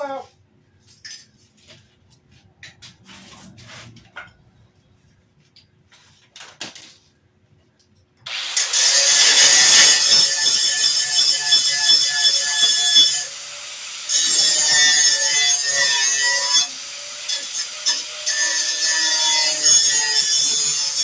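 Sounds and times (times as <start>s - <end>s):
angle grinder grinding steel: 8.3s - 21.0s.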